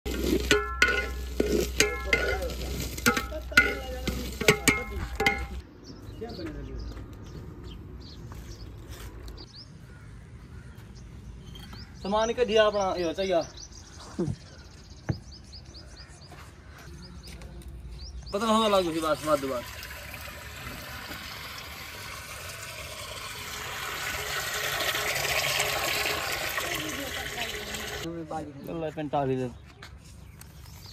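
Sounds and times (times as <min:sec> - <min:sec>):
hose water pouring into metal pot: 0:00.1 - 0:05.6, 0:18.5 - 0:28.1
ladle clanking on metal pot: 0:00.1 - 0:05.6
metal ladle stirring rice: 0:00.1 - 0:05.6.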